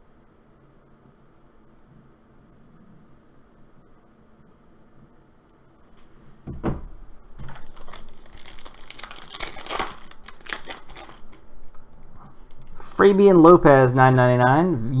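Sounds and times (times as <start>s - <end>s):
thump: 6.4s - 6.9s
foil wrapper crinkling: 7.4s - 11.5s.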